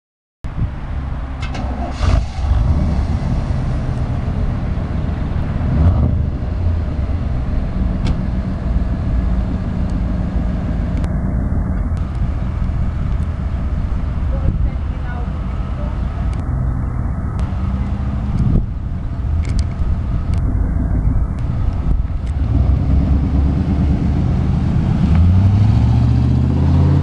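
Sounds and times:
van engine exhaust rumble: 0:00.5 - 0:27.0.

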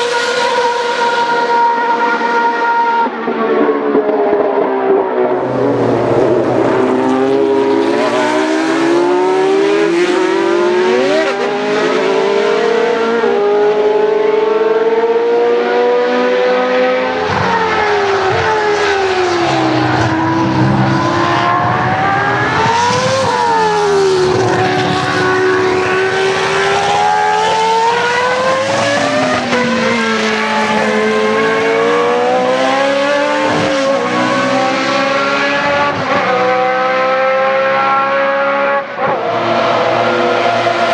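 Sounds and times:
racing car engines revving: 0:00.0 - 0:40.9.

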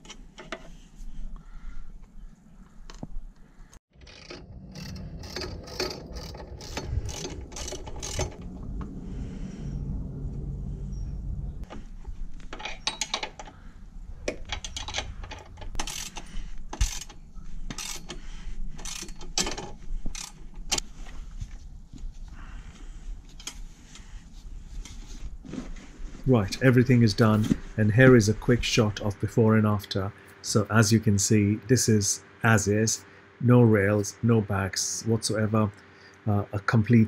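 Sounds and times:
ratchet spanner clicking: 0:04.0 - 0:08.4, 0:14.3 - 0:18.2, 0:18.8 - 0:20.8.

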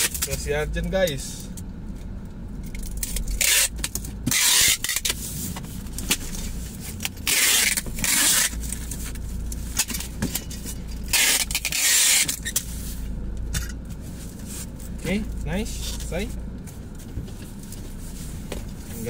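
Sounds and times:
packing tape tearing off dispenser: 0:03.0 - 0:05.2, 0:07.2 - 0:08.9, 0:11.1 - 0:12.6.

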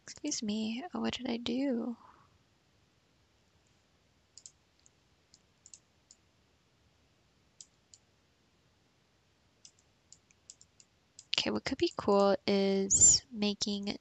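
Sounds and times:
computer mouse clicking: 0:04.3 - 0:06.2, 0:07.6 - 0:08.1, 0:09.6 - 0:12.3.

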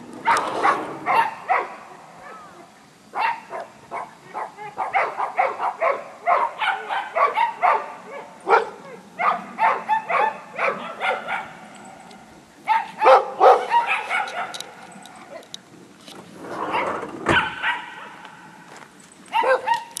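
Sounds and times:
dog barking: 0:00.2 - 0:11.6, 0:12.7 - 0:14.7, 0:16.7 - 0:18.3, 0:19.3 - 0:19.9.

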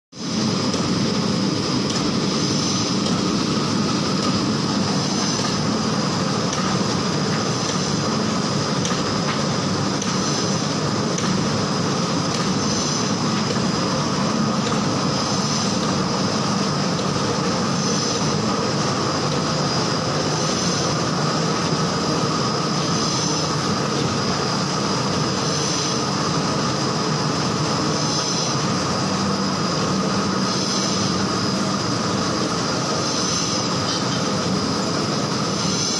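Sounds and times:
machine hum and whine: 0:00.1 - 0:35.9.

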